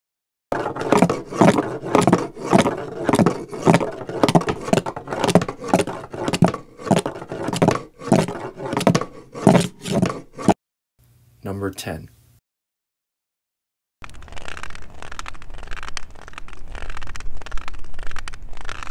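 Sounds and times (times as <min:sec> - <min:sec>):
cane scraping wooden floor: 0:00.5 - 0:10.6
cane knocking on wooden floor: 0:00.6 - 0:10.6.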